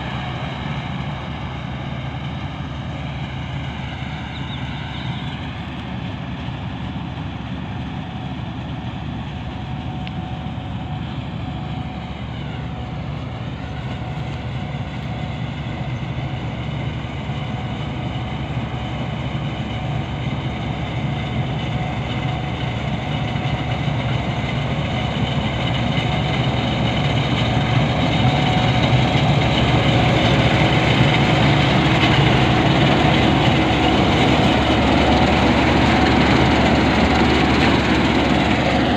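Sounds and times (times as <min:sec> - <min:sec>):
combine harvester machinery: 0:00.0 - 0:38.9.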